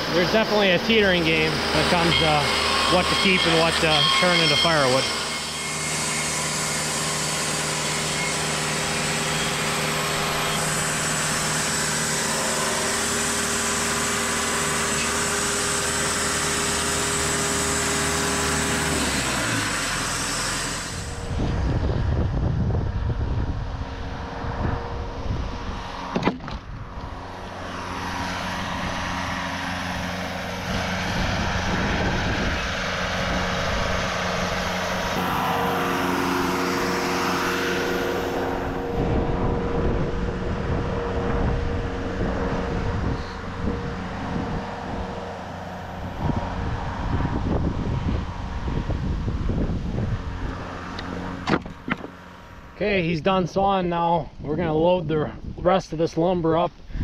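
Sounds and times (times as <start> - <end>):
sawmill engine running: 0.0 - 55.1
wind rumble on microphone: 20.8 - 57.0.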